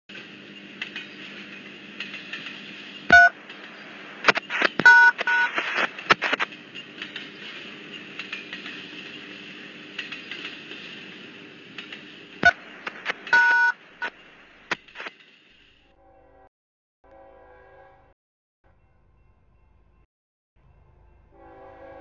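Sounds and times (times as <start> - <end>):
electronic hiss: 2.4 - 7.8
two-tone touch-tone beep: 3.1 - 3.4, 4.8 - 5.5, 13.3 - 13.8.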